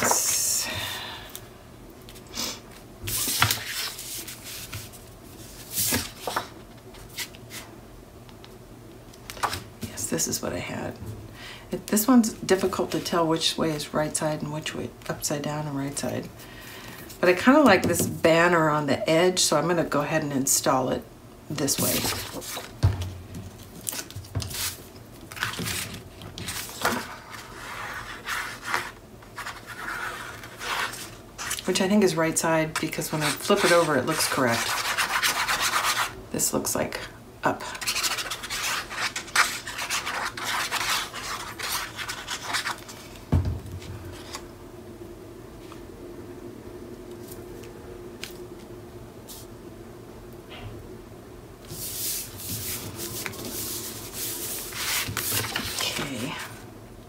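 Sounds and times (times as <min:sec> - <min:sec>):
paper rustling and sliding: 0:03.1 - 0:07.6, 0:21.8 - 0:22.8, 0:23.8 - 0:31.6, 0:51.7 - 0:56.2.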